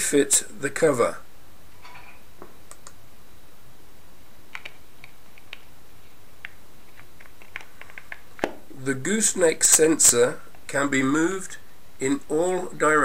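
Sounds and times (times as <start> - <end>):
steady background hiss: 0.0 - 13.0
plastic clicks and taps: 6.4 - 8.6.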